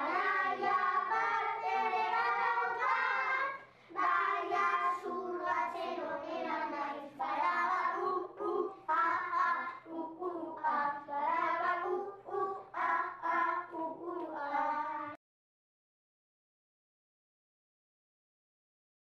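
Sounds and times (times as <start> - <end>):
children singing: 0.0 - 15.2.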